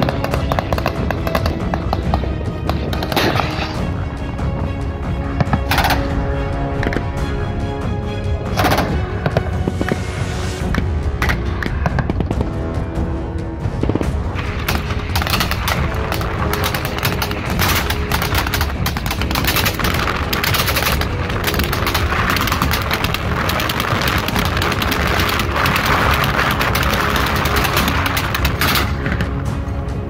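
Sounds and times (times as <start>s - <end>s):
background music: 0.0s - 30.0s
rapid automatic gunfire: 14.4s - 29.0s.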